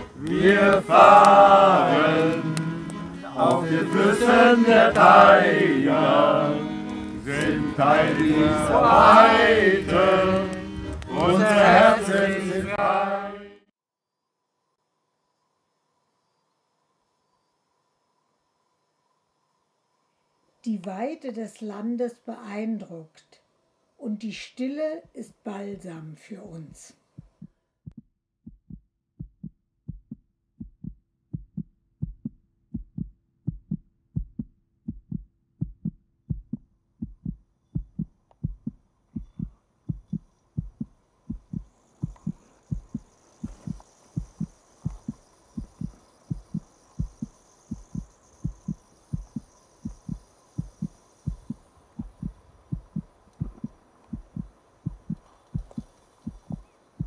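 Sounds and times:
high hazy layer: 0:00.0 - 0:13.6
low thumping beat: 0:03.4 - 0:12.9, 0:27.2 - 0:56.6.

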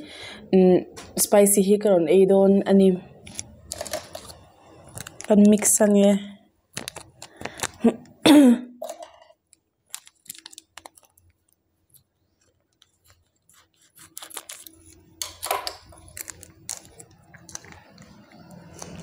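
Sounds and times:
plastic sachet crinkling: 0:03.2 - 0:06.0, 0:06.7 - 0:08.0, 0:09.0 - 0:19.0
scissors snipping: 0:13.0 - 0:14.8.

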